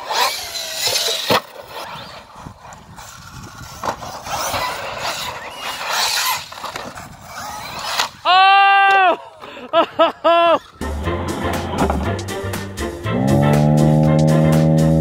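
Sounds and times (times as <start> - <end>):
rough rolling noise: 10.8 - 15.0.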